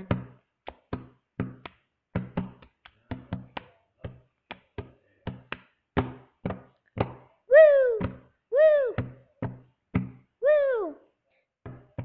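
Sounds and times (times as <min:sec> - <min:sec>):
hands clapping: 0:00.0 - 0:07.3
hands slapping a tabletop: 0:00.0 - 0:07.3, 0:11.6 - 0:12.0.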